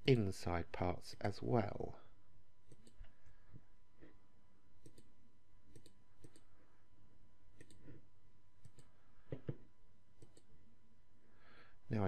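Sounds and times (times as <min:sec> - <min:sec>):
computer mouse clicking: 0:02.7 - 0:03.1, 0:04.8 - 0:05.1, 0:05.7 - 0:06.5, 0:07.6 - 0:08.0, 0:08.6 - 0:09.4, 0:10.2 - 0:10.5.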